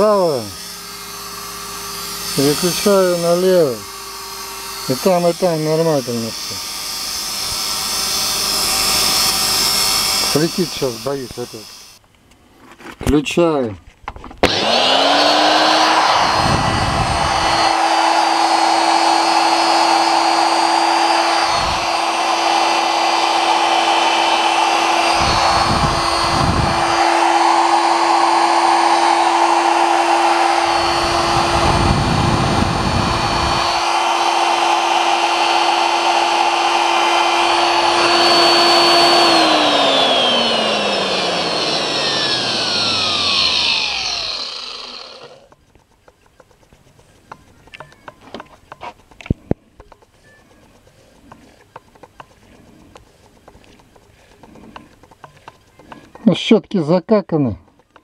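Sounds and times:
electric drill motor whine: 0.0 - 12.0, 14.4 - 45.6.

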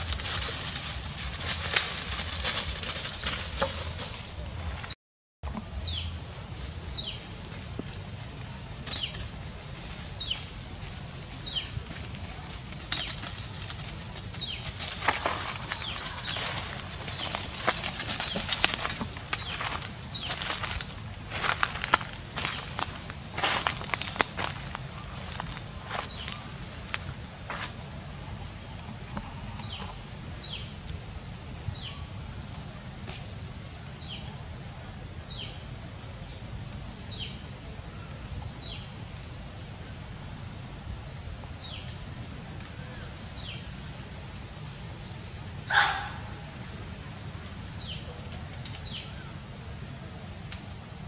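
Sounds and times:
monkey walking on dry leaves: 0.0 - 32.0
steady high hiss: 0.0 - 51.0.

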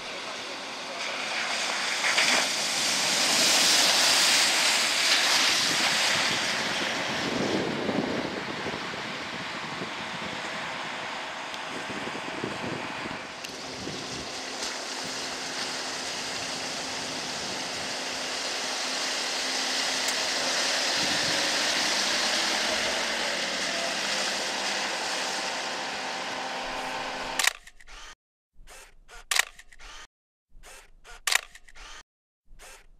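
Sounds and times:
water rushing: 0.0 - 12.0, 13.2 - 27.4
wind: 0.0 - 32.9
faint engine hum: 5.8 - 28.9
camera shutter click: 27.4 - 32.0.

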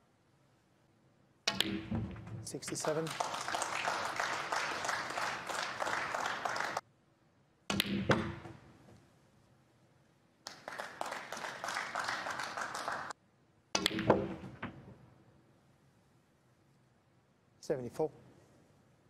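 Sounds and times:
billiard balls clicking: 1.5 - 3.0, 13.8 - 15.0
audience applause: 2.7 - 6.8, 10.5 - 13.2.

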